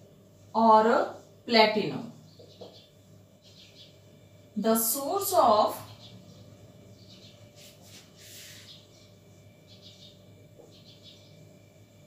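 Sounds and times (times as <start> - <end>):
low steady hum: 0.0 - 12.0
marker pen squeaking on whiteboard: 7.5 - 9.0.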